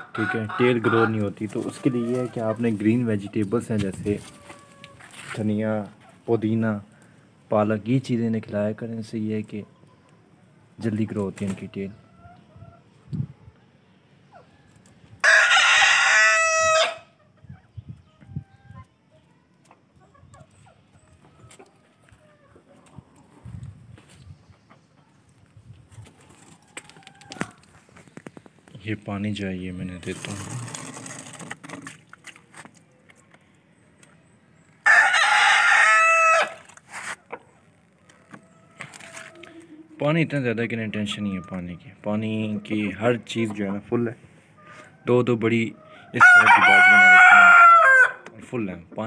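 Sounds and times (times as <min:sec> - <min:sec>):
faint chicken clucks: 0:00.0 - 0:03.6, 0:04.2 - 0:05.3, 0:09.3 - 0:10.7, 0:11.5 - 0:28.4, 0:32.9 - 0:49.0
rooster crowing: 0:15.2 - 0:17.1, 0:34.8 - 0:36.6, 0:46.2 - 0:48.2.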